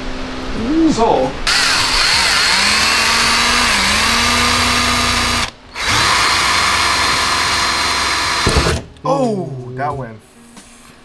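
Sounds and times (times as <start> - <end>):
cordless drill boring: 1.5 - 8.8.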